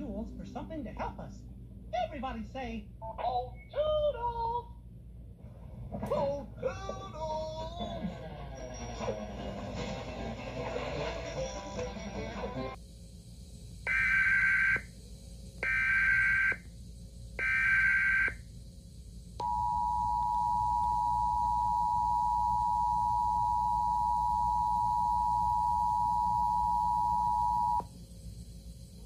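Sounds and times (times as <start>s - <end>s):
screechy digital data tones: 13.9s - 14.9s, 15.6s - 16.7s, 17.4s - 18.4s.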